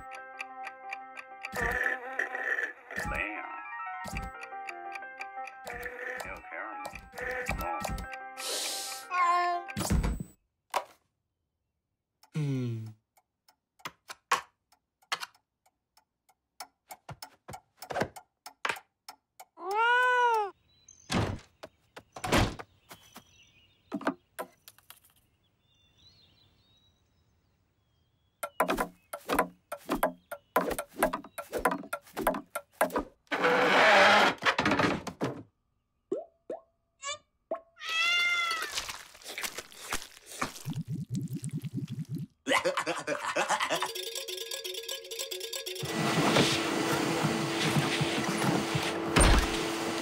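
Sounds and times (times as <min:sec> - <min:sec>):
cartoon clicks and knocks: 0:01.5 - 0:02.0, 0:04.0 - 0:04.4, 0:05.3 - 0:08.2, 0:12.8 - 0:20.5, 0:28.4 - 0:33.0.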